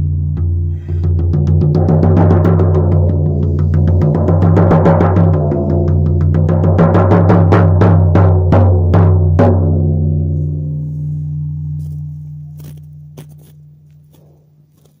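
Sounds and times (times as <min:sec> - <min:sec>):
hand drum beating: 0:00.3 - 0:10.8
low ringing tone: 0:10.0 - 0:14.9.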